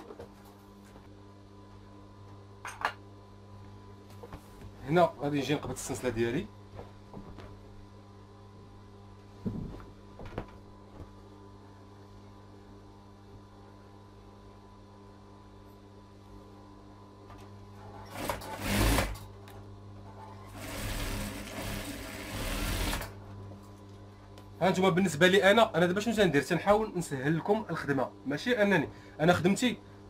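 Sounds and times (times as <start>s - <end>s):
sewing machine stitching: 17.8s - 19.2s, 20.2s - 23.2s
sewing machine motor humming: 17.9s - 19.3s, 20.3s - 23.2s.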